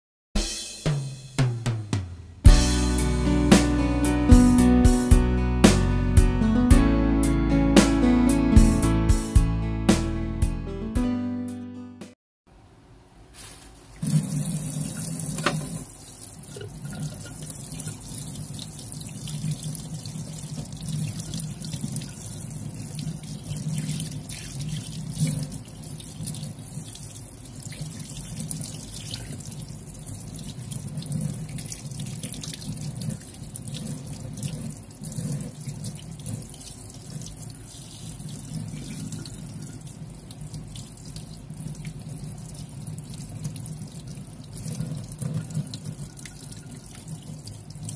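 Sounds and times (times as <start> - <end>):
tap water running into sink: 13.9 - 47.9.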